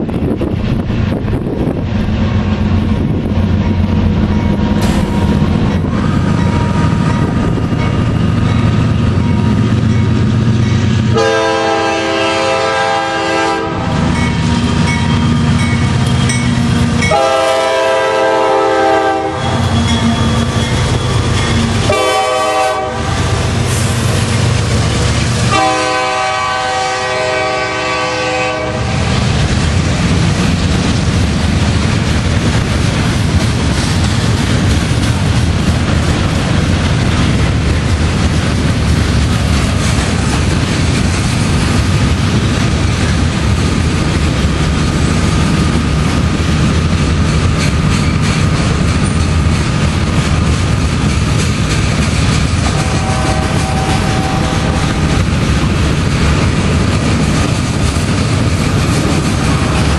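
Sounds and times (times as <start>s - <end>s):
diesel locomotive rumble: 0.0s - 59.9s
train air horn blasts: 11.1s - 14.1s, 17.0s - 20.6s, 21.5s - 24.0s, 25.4s - 29.2s, 52.6s - 55.3s.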